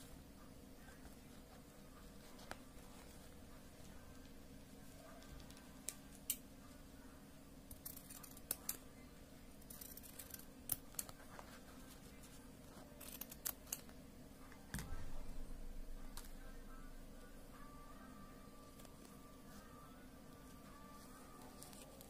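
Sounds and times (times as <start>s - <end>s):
scissors snipping fabric: 7.7s - 8.8s, 9.6s - 11.2s, 13.0s - 13.9s.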